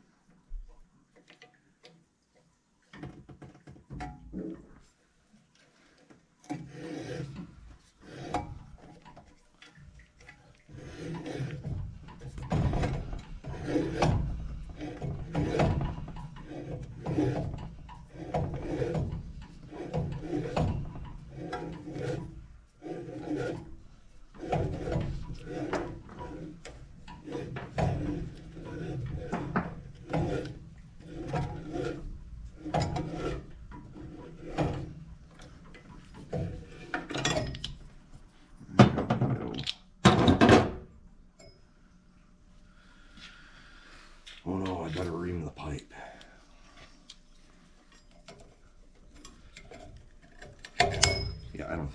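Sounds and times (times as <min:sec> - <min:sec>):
pipe cutter scraping copper: 0:06.5 - 0:09.4, 0:10.2 - 0:37.8.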